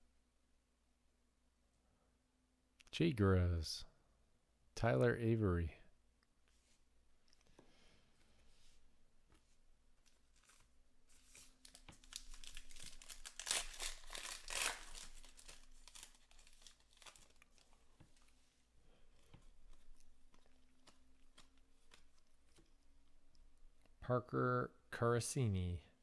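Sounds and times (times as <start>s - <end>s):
cards rustling and clicking: 9.3s - 18.4s, 19.1s - 23.1s
card pack wrapper tearing: 10.0s - 17.8s.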